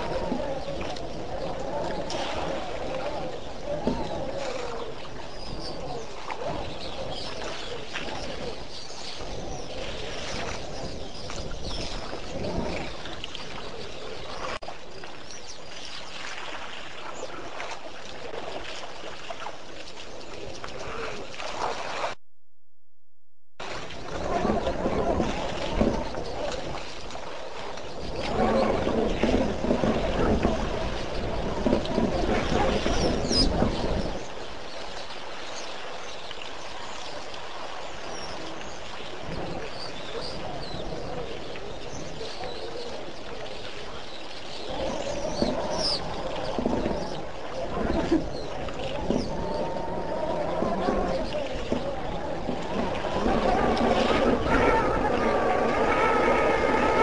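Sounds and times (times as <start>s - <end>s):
water sloshing and trickling: 0.0s - 22.2s, 23.6s - 57.0s
elephants splashing: 23.6s - 57.0s
small birds chirping: 32.8s - 37.2s.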